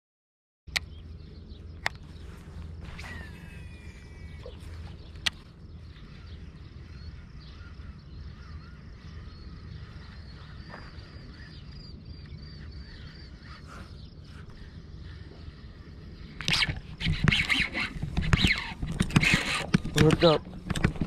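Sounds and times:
sharp click: 0:00.7 - 0:00.9
birds chirping: 0:00.7 - 0:21.0
wind rumble on microphone: 0:00.7 - 0:21.0.

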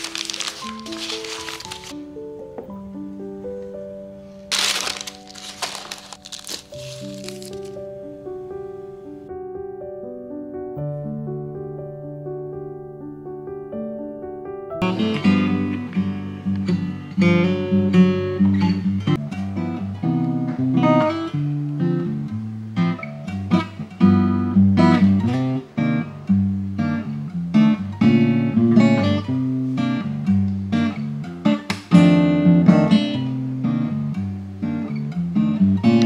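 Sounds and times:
acoustic guitar playing: 0:00.0 - 0:02.4, 0:04.2 - 0:09.2, 0:14.8 - 0:36.0.

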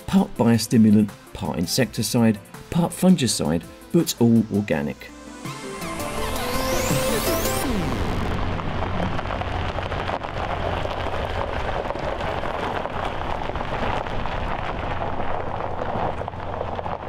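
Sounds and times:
tyres crunching on gravel: 0:08.4 - 0:17.0.

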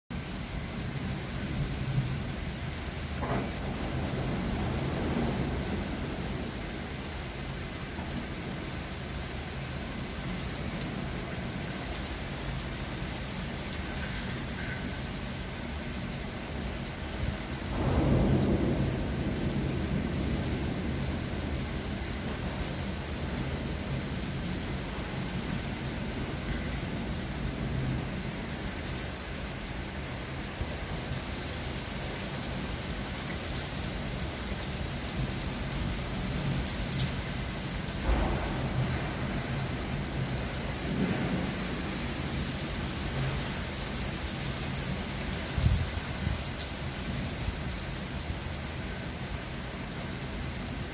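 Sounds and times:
steady rain: 0:00.1 - 0:50.9
thunder rolling: 0:03.0 - 0:07.2, 0:17.6 - 0:28.6, 0:35.8 - 0:43.5.

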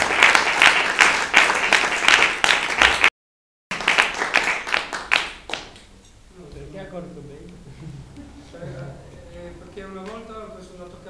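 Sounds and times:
audience applauding: 0:00.0 - 0:03.1, 0:03.7 - 0:05.8.

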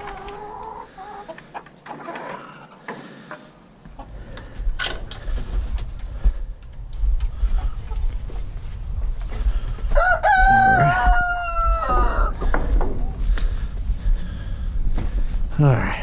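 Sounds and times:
chickens clucking: 0:00.0 - 0:04.6, 0:07.2 - 0:08.3
low rumbling on microphone: 0:03.9 - 0:16.0.

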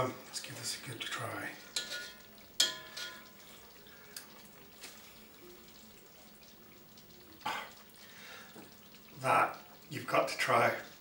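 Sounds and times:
curry sizzling in pan: 0:00.0 - 0:11.0
metal fork clinking on pan: 0:01.8 - 0:03.4.

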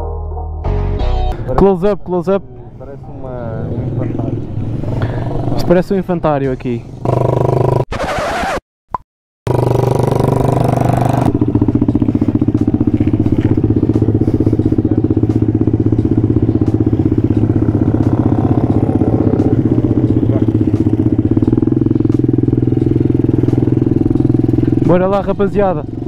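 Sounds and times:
motorbike engine running: 0:07.0 - 0:07.8, 0:09.5 - 0:26.0.

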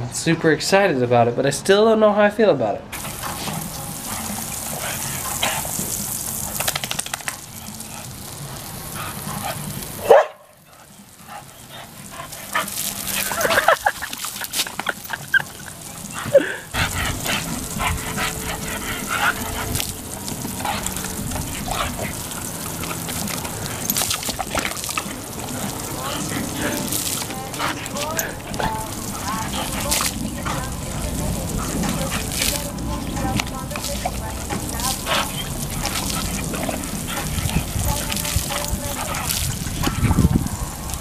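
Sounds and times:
hose water hissing: 0:02.9 - 0:41.0
dog barking and yipping: 0:09.4 - 0:10.6.

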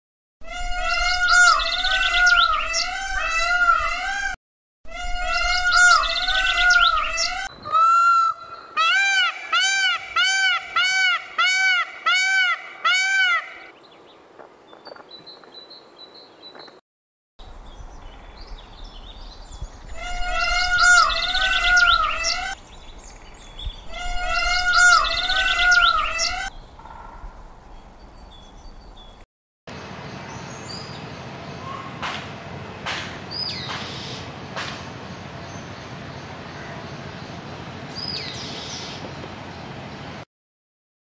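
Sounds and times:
peacock calling: 0:00.4 - 0:13.7, 0:19.9 - 0:22.8, 0:23.7 - 0:27.5
small birds chirping: 0:17.5 - 0:29.2.

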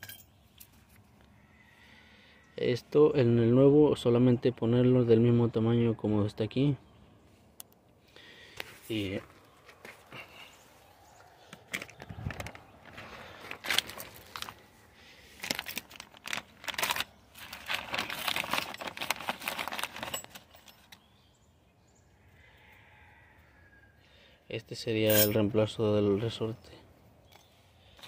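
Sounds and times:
small metal parts clinking: 0:00.0 - 0:00.8, 0:15.4 - 0:21.0, 0:25.1 - 0:25.4
plastic bag crinkling: 0:11.7 - 0:20.9.

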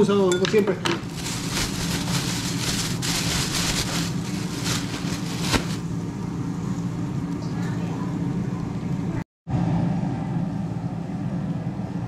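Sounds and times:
steady low hum: 0:00.0 - 0:12.0
plastic bag crinkling: 0:01.0 - 0:05.9.

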